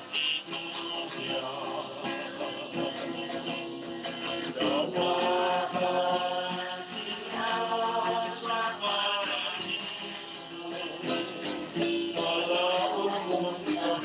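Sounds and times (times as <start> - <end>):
person singing a hymn: 0.0 - 14.0
plucked guitar: 0.0 - 14.0.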